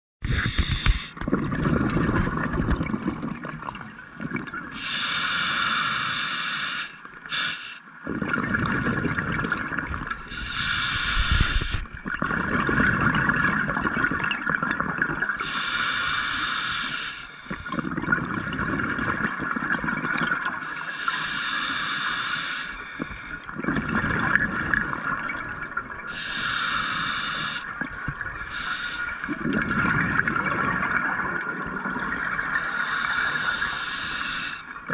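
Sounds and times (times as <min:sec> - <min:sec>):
diver inhaling through regulator: 0:00.2 - 0:01.2, 0:04.8 - 0:07.8, 0:10.3 - 0:12.0, 0:15.4 - 0:17.8, 0:20.6 - 0:23.4, 0:26.1 - 0:29.6, 0:32.6 - 0:34.8
low bubbling exhale: 0:22.8 - 0:34.9.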